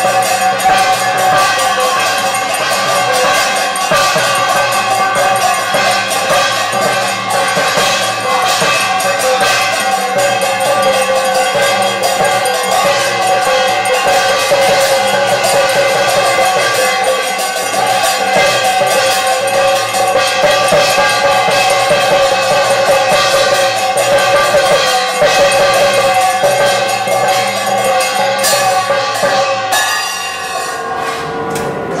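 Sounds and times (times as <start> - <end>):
brass hand bell ringing: 0.0 - 32.0
drum beats: 0.0 - 32.0.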